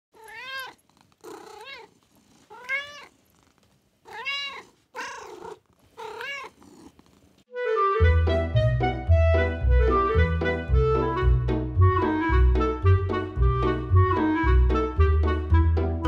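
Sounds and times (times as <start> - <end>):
cat meowing: 0.2 - 1.9, 2.5 - 3.2, 4.1 - 6.6
woodwind melody with bass: 7.5 - 16.0.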